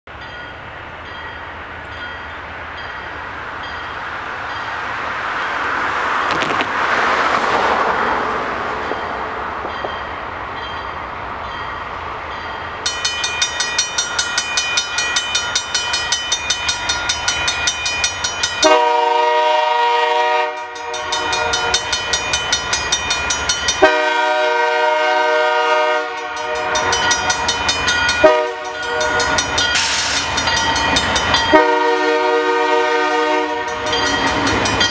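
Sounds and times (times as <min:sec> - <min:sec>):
railroad crossing bell ringing: 0:00.1 - 0:05.6, 0:08.8 - 0:34.9
rushing noise: 0:03.4 - 0:13.0
train air horn blasts: 0:18.6 - 0:21.9, 0:23.8 - 0:27.5, 0:28.2 - 0:30.2, 0:31.5 - 0:34.0.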